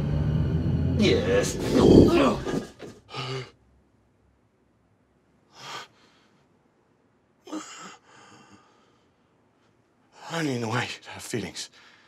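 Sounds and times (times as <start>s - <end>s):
person sighing: 1.0s - 3.6s.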